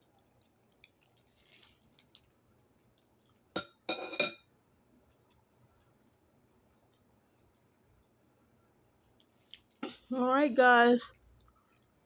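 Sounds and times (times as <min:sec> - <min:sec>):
tableware clinking: 0:03.6 - 0:04.5.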